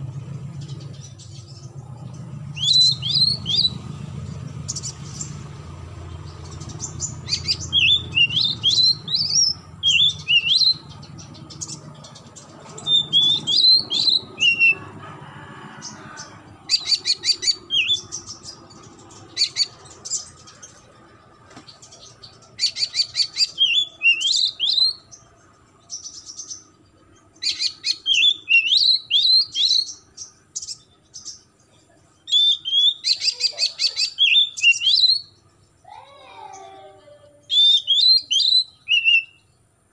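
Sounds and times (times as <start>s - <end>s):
bird singing rattles and whistles: 6.3s - 14.8s, 32.3s - 35.5s, 37.5s - 39.4s.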